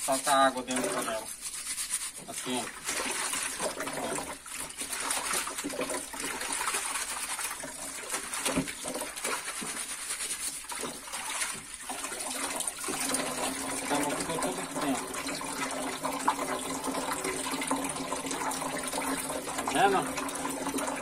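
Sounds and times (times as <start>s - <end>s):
fish scrubbed in mesh bag: 0.0s - 3.6s, 9.0s - 11.3s
tap running into sink: 7.6s - 9.8s.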